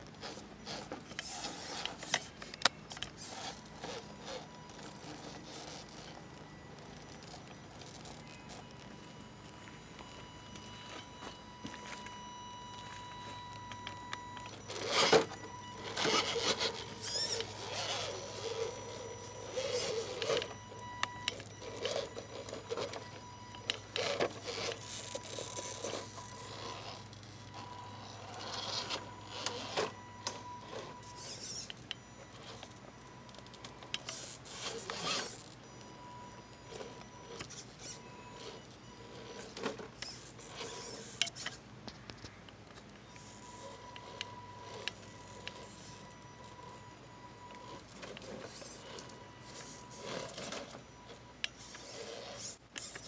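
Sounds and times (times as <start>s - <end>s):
rc car motor whining: 0.0s - 41.6s, 43.0s - 53.0s.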